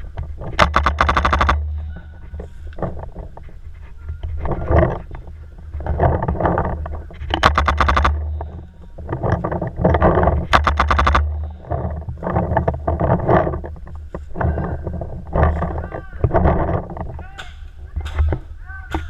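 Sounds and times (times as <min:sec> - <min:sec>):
heavy rhythmic breathing: 0:00.0 - 0:16.9
paintball marker firing: 0:00.6 - 0:01.9, 0:07.3 - 0:08.3.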